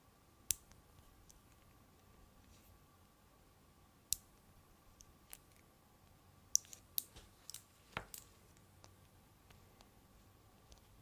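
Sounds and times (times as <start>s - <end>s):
magnet balls clicking: 4.1s - 5.6s, 6.5s - 9.0s.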